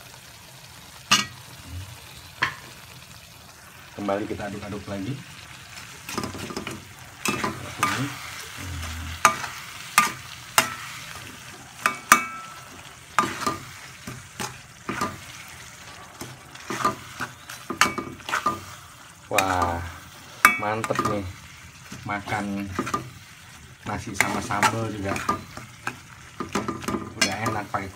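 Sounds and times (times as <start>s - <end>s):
faint sizzle of frying: 0.0s - 27.9s
spoon clinking on pan: 1.1s - 1.4s, 11.8s - 13.6s, 20.4s - 21.2s
spoon scraping a metal pan: 6.0s - 18.8s, 24.2s - 27.8s.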